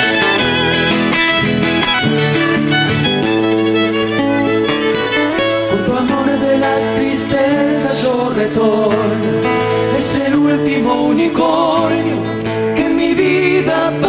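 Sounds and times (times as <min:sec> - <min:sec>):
violin melody: 0:00.0 - 0:07.3
high-pitched strummed string instrument: 0:00.0 - 0:09.9
strummed acoustic guitars: 0:00.0 - 0:14.0.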